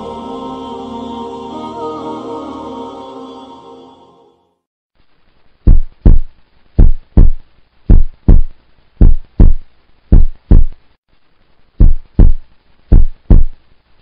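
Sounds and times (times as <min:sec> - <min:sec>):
heartbeat thumps: 0:05.7 - 0:10.8, 0:11.8 - 0:13.6.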